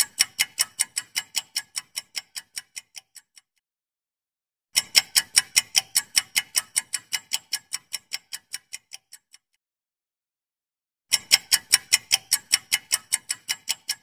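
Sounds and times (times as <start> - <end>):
clock ticking: 0.0 - 3.5, 4.8 - 9.5, 11.1 - 14.0.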